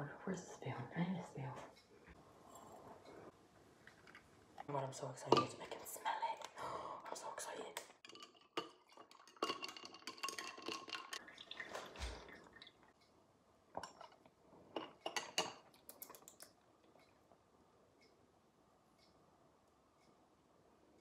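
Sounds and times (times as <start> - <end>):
metal straw clinking against glass: 8.0 - 11.2
coffee pouring into glass: 8.0 - 12.9.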